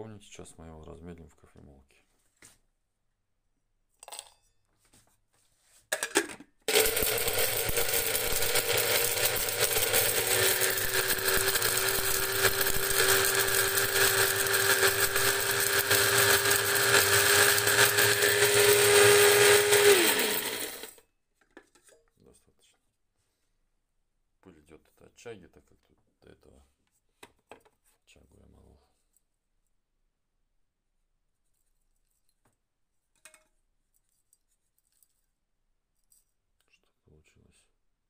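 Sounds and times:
coffee grinder grinding: 6.0s - 21.0s.

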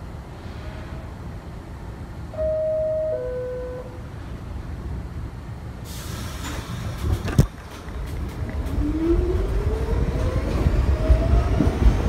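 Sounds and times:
low hum of stopped train: 0.0s - 12.0s
hiss of air: 5.8s - 7.2s.

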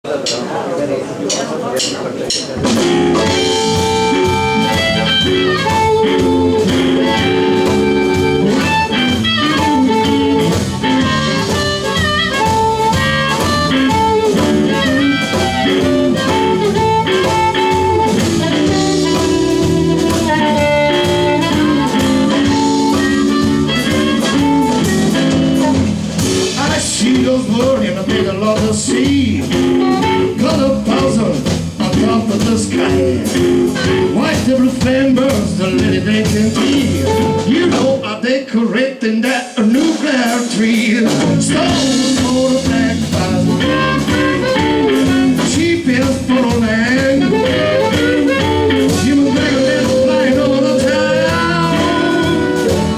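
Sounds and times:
drums: 0.0s - 52.9s
bass guitar: 2.3s - 38.2s, 39.8s - 52.9s
electric guitar: 2.6s - 38.1s, 41.0s - 52.9s
amplified harmonica: 2.8s - 26.5s, 41.6s - 52.9s.

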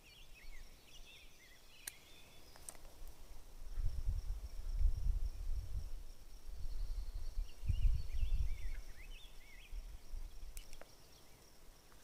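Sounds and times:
high insect drone: 0.0s - 12.0s
wind rumbling on microphone: 2.8s - 10.9s.

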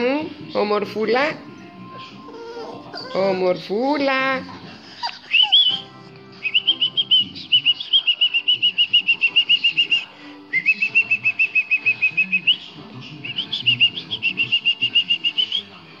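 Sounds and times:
songbird whistling rapid notes: 5.2s - 15.8s.

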